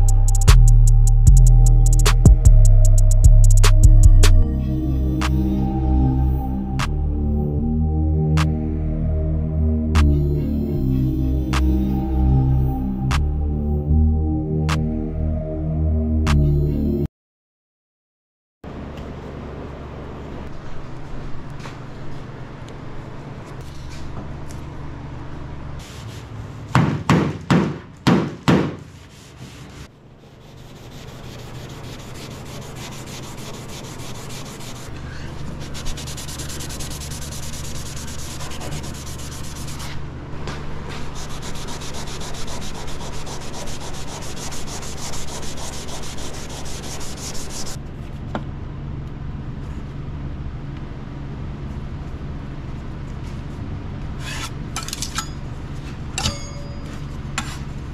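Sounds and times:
sanding rasping scrub: 0:29.0 - 0:40.0, 0:40.9 - 0:47.8
constant low hum: 0:29.9 - 0:57.9.

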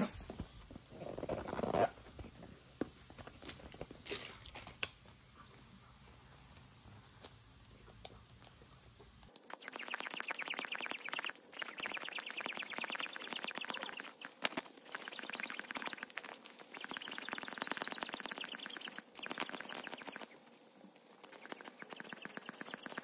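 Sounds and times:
small air pump squeaky buzz: 0:09.5 - 0:20.4, 0:21.2 - 0:23.0.

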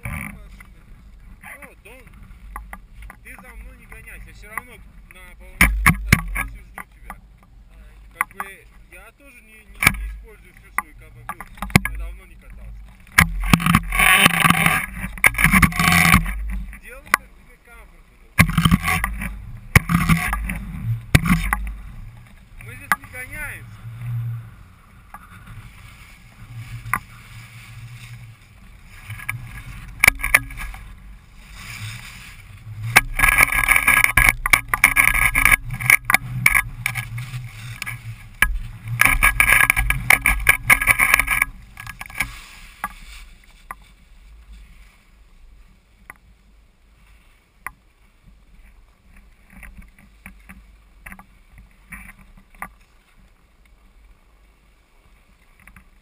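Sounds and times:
skis scraping over snow: 0:00.0 - 0:05.6, 0:07.7 - 0:45.9
wind rumbling on microphone: 0:00.0 - 0:56.0.

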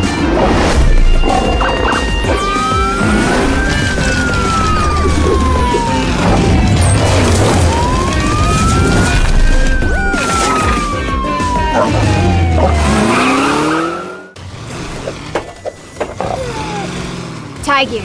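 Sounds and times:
background music with low beat: 0:00.0 - 0:06.8
siren wailing: 0:01.1 - 0:14.4.

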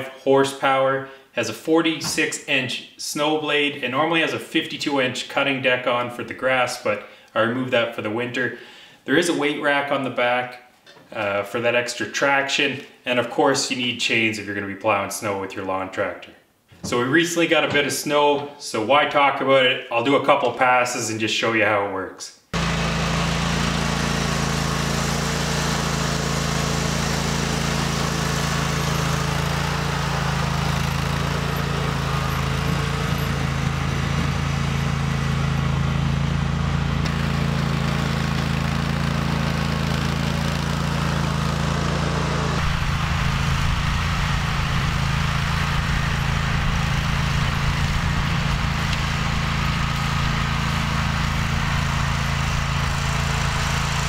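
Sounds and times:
lawn tractor engine rumbling: 0:22.6 - 0:54.0.

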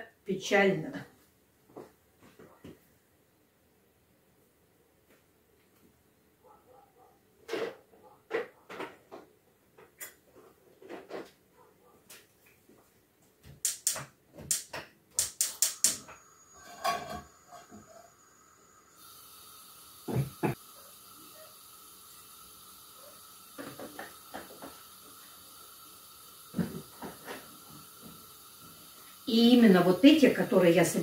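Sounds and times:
clicks and knocks at stove: 0:13.5 - 0:17.7
steady hiss: 0:13.5 - 0:31.0.

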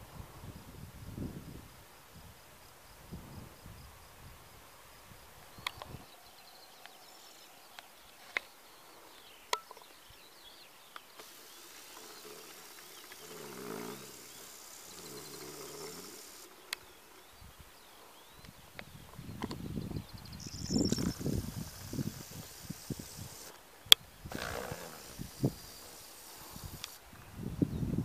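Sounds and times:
insects chirping: 0:00.6 - 0:27.3
small birds chirping: 0:05.6 - 0:23.6, 0:24.2 - 0:27.0
sharp clicks: 0:24.3 - 0:27.0.

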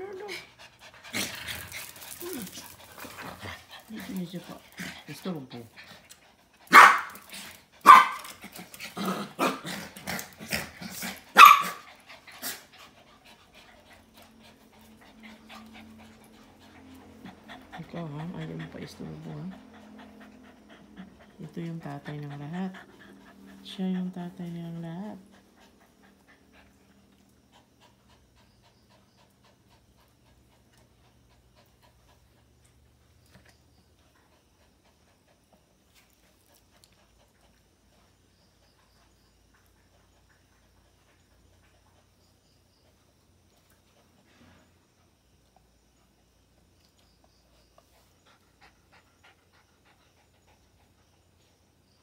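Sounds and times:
dog panting: 0:00.0 - 0:07.8, 0:09.9 - 0:44.5, 0:47.2 - 0:52.0
dogs barking: 0:06.7 - 0:07.2, 0:07.8 - 0:08.3, 0:11.3 - 0:11.9.

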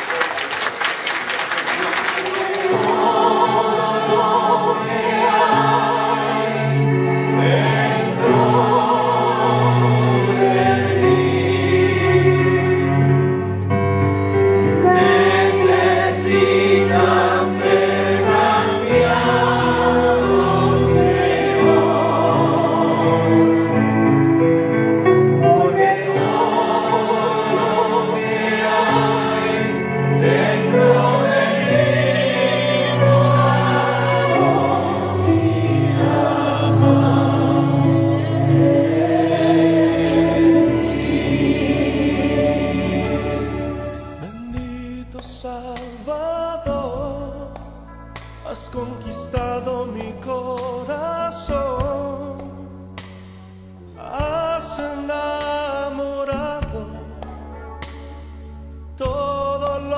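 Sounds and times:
church choir singing: 0:01.6 - 0:44.6
instrumental accompaniment: 0:02.0 - 0:59.9.

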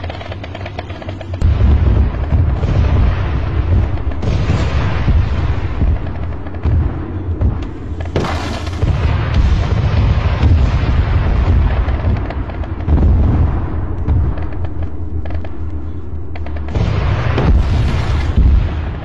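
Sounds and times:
gunfire cracks: 0:00.0 - 0:13.5
rumble of explosions: 0:00.0 - 0:19.0
loud blast: 0:01.4 - 0:14.5, 0:16.7 - 0:19.0.

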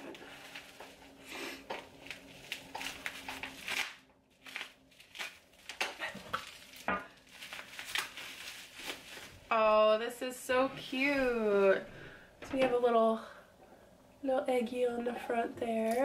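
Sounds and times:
bubble wrap crinkling: 0:00.0 - 0:10.2.

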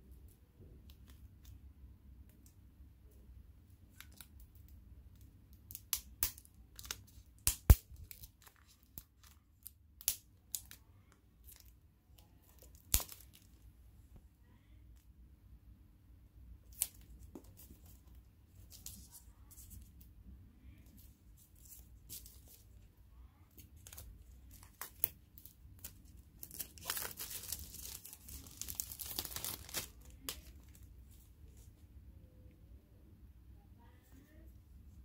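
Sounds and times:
packaging crinkling and tearing: 0:12.5 - 0:13.6, 0:23.8 - 0:30.9.

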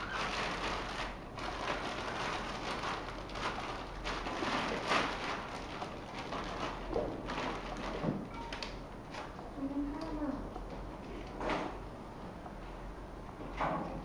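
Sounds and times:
plastic bag crinkling and rustling: 0:00.0 - 0:10.2.

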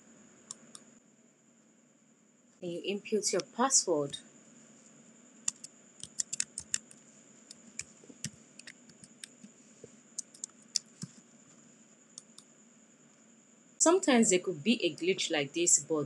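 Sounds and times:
faint high-pitched whine: 0:00.0 - 0:16.0
keyboard key clicks: 0:05.5 - 0:07.0.

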